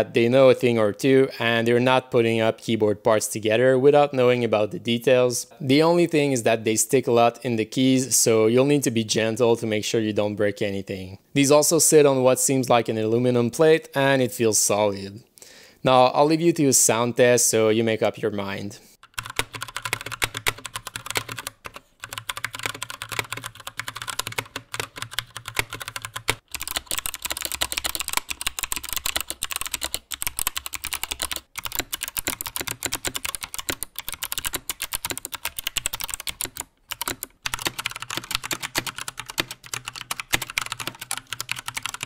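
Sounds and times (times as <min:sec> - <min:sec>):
fast typing on mechanical keyboards: 0:19.0 - 0:42.0.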